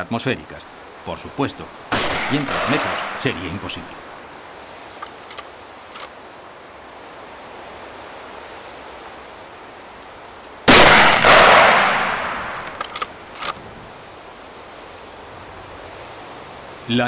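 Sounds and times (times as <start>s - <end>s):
rifle shot with echo: 1.9s - 3.5s, 10.7s - 12.8s
sharp clicks: 5.0s - 6.1s, 12.2s - 13.6s.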